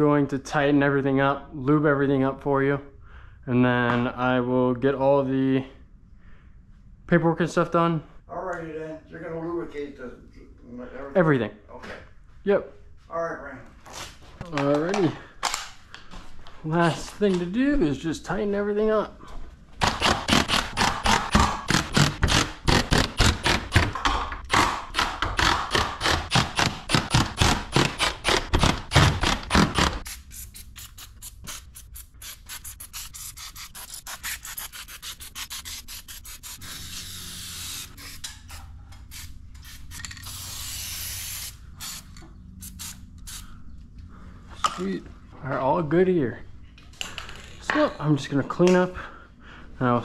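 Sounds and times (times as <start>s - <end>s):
hand tool rasping: 19.8s - 40.4s
aerosol spray hissing: 30.0s - 38.2s, 39.1s - 43.4s.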